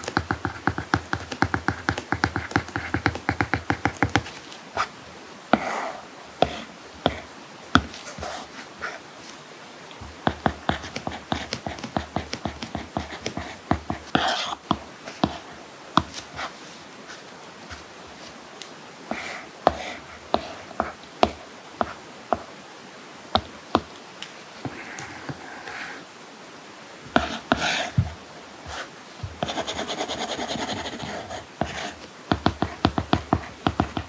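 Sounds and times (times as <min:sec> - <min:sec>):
stylus tapping on tablet screen: 0:00.0 - 0:04.3, 0:10.0 - 0:15.4, 0:19.1 - 0:22.5, 0:27.1 - 0:28.2, 0:29.2 - 0:34.0.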